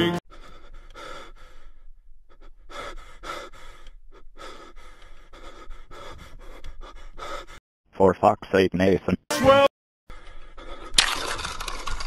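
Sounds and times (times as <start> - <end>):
person breathing heavily: 0.3 - 7.6, 10.1 - 11.6.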